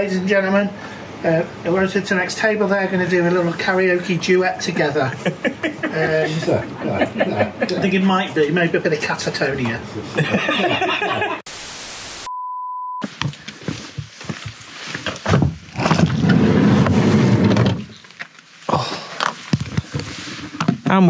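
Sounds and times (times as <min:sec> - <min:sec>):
static hiss: 0:00.0 - 0:12.3
steady beep: 0:12.2 - 0:13.0.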